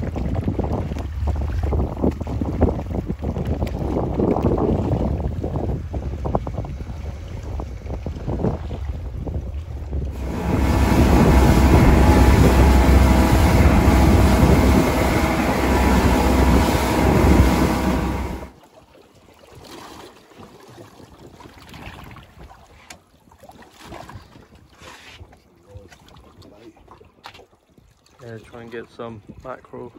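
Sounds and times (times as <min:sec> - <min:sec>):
wind buffeting microphone: 0:00.0 - 0:18.5
outboard motor drone: 0:00.0 - 0:18.6
rushing wake water: 0:00.0 - 0:29.9.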